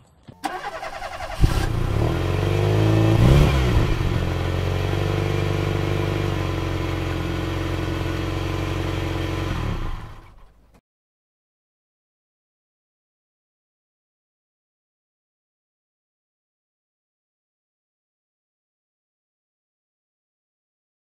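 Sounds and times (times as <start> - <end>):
motorcycle engine running: 1.5 - 10.3.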